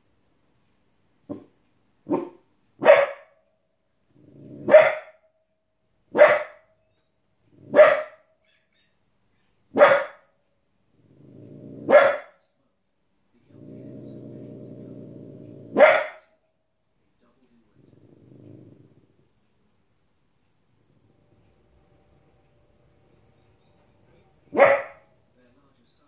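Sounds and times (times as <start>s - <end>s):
puppy barking: 1.3s - 1.5s, 2.1s - 3.4s, 4.6s - 5.2s, 6.1s - 6.8s, 7.7s - 8.8s, 9.7s - 10.3s, 11.8s - 12.4s, 15.7s - 16.4s, 24.5s - 25.2s
puppy growling low: 4.1s - 4.7s, 7.4s - 7.8s, 10.9s - 12.0s, 13.4s - 15.9s, 17.5s - 19.3s.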